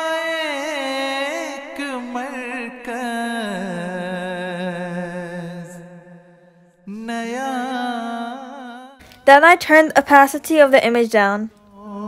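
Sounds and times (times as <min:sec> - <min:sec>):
man singing long held notes: 0:00.0 - 0:06.1.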